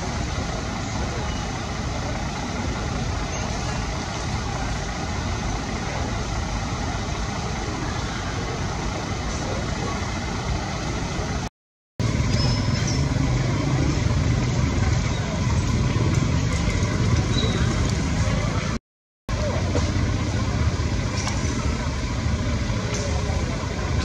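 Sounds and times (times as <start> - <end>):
rushing outdoor noise: 0.0 - 24.0.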